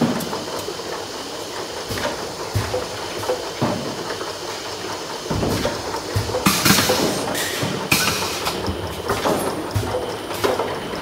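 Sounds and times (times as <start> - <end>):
machine knocking and clicking: 0.0 - 11.0
plastic bottles clattering on conveyor: 0.0 - 11.0.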